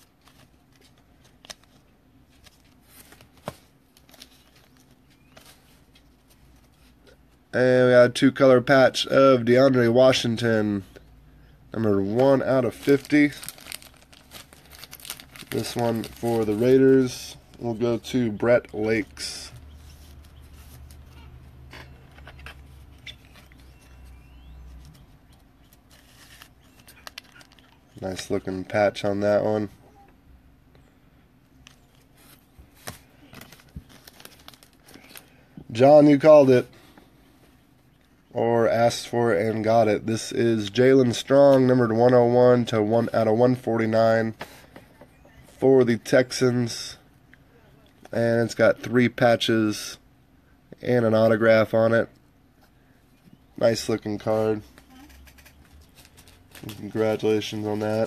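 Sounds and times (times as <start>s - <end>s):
card and foil wrapper rustling: 0.0s - 7.1s, 11.8s - 29.2s, 31.6s - 36.5s, 53.6s - 58.0s
low steady hum: 0.0s - 58.0s.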